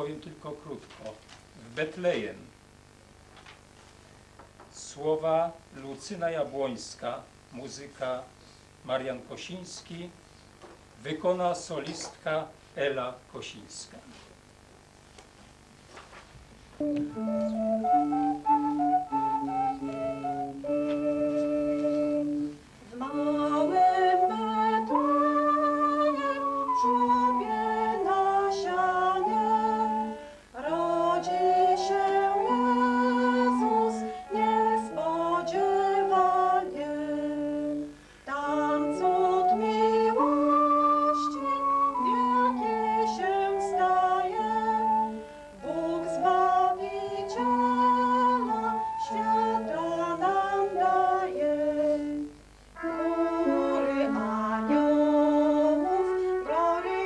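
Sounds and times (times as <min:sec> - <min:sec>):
electronic keyboard: 0:16.8 - 0:22.6
woman singing: 0:19.8 - 0:57.0.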